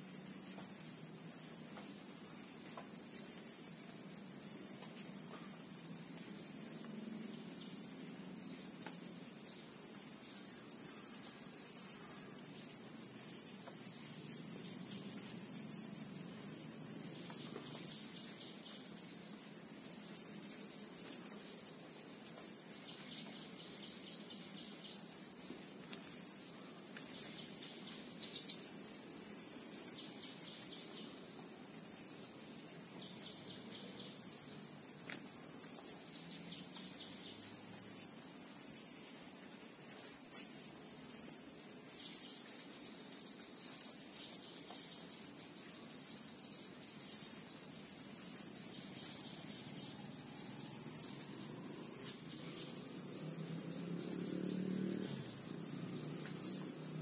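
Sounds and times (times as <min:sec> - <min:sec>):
insects trilling: 0:00.0 - 0:57.0
faint pulsing chirp: 0:38.8 - 0:53.4
bird high rising calls: 0:39.9 - 0:40.4, 0:43.7 - 0:44.1, 0:49.0 - 0:49.3, 0:52.0 - 0:52.8.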